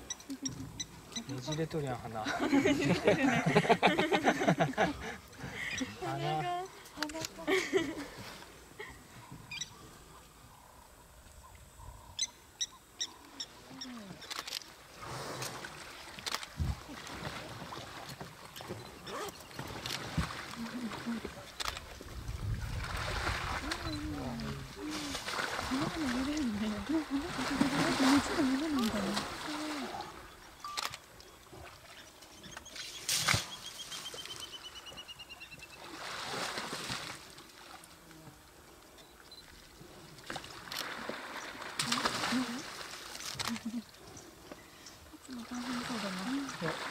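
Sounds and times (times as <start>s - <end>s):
mud splashing and sloshing: 14.3s - 30.3s, 35.8s - 37.8s, 40.1s - 43.9s, 45.3s - 46.9s.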